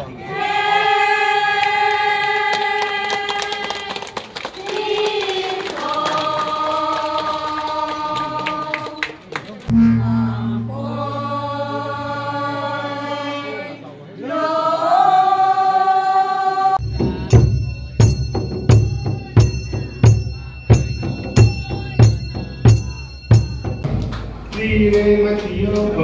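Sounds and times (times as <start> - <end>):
women singing together: 0.2 - 9.0, 10.0 - 16.8
low gong hum: 9.7 - 13.4
steady drum beats: 16.8 - 25.8.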